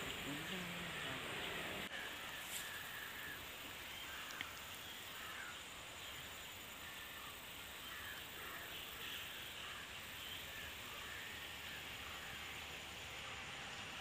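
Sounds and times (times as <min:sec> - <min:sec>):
distant bird calls: 0:00.0 - 0:14.0
steady high hiss: 0:00.0 - 0:14.0
small click: 0:04.2 - 0:04.5.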